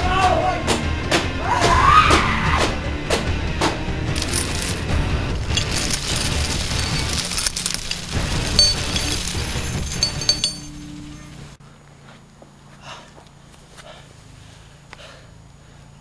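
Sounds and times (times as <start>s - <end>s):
chain dragged across gravel: 4.2s - 11.6s.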